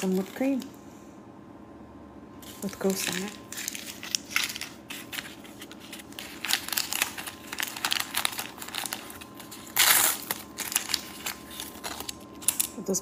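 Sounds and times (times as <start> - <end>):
plastic packet crinkling: 0.0 - 0.7, 2.4 - 12.8
plastic packet ripping: 2.4 - 12.8.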